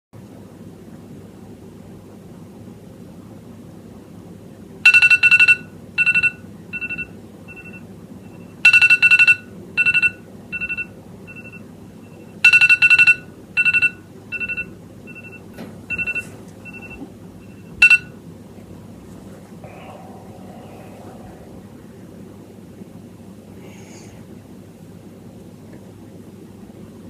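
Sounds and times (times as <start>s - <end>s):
phone alarm electronic beeps: 12.5s - 18.1s.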